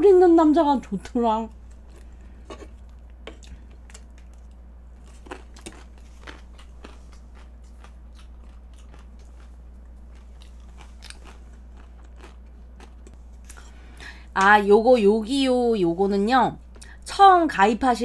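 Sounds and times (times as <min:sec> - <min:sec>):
low hum: 0:00.0 - 0:17.9
person chewing food: 0:01.5 - 0:14.0.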